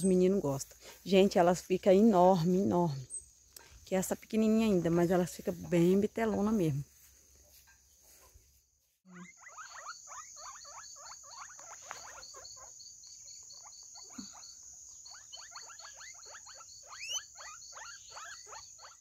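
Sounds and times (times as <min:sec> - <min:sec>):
guinea pigs squeaking: 0:09.1 - 0:19.0.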